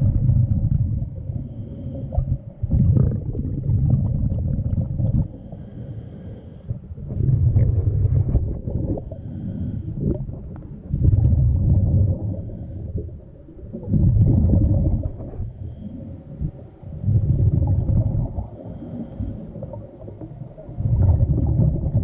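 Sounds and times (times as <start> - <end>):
underwater diver breathing: 1.1 - 3.7, 4.4 - 11.0, 12.1 - 22.0.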